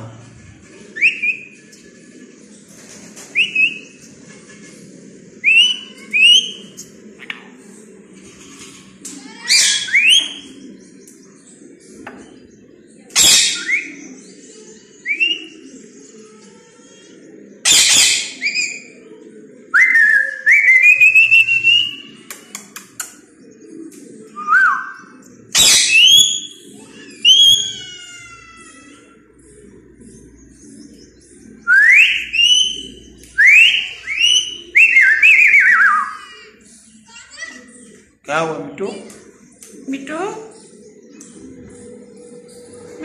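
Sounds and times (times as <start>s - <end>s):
parakeet screeching: 25.6s - 29.2s.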